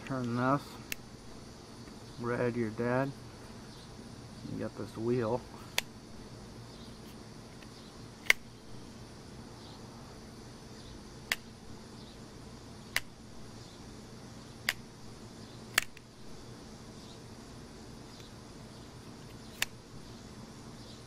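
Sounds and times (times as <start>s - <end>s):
folding knife mechanism clicking: 15.7s - 16.0s.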